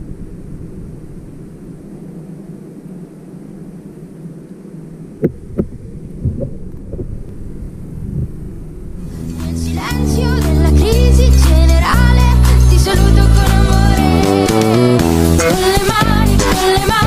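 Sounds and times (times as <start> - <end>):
muffled underwater rumble: 0.0 - 10.3
music: 9.1 - 17.0.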